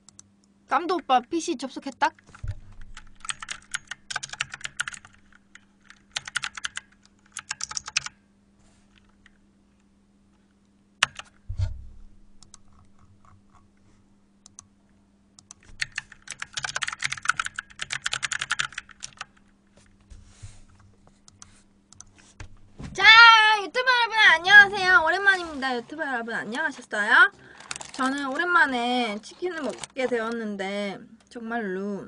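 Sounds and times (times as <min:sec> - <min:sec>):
faint steady hum: 0:00.0 - 0:32.0
typing on computer keyboard: 0:02.1 - 0:08.2, 0:11.0 - 0:11.3, 0:15.4 - 0:19.4.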